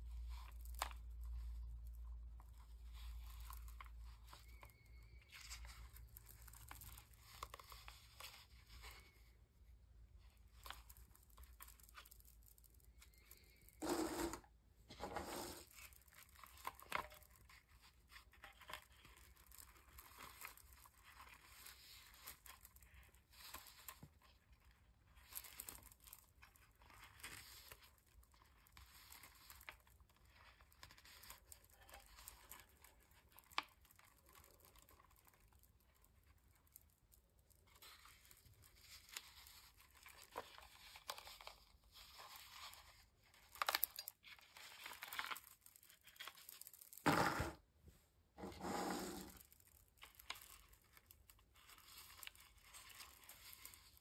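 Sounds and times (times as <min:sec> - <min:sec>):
beaded lampshade rustling and clicking: 0:00.0 - 0:54.0.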